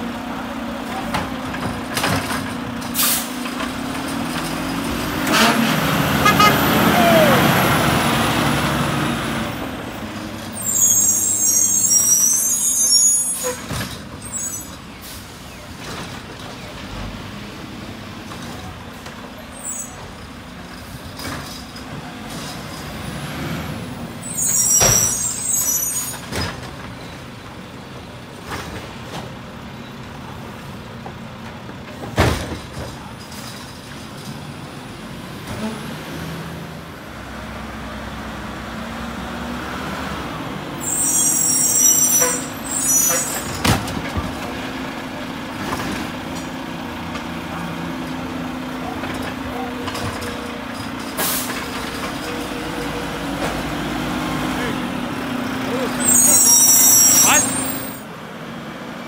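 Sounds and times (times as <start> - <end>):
air brakes hissing: 3.0 - 3.4, 40.8 - 43.6, 56.0 - 58.0.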